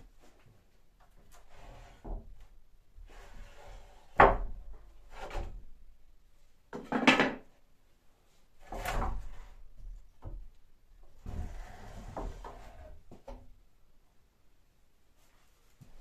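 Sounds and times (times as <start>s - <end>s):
wooden boards knocking and scraping: 6.8s - 7.4s.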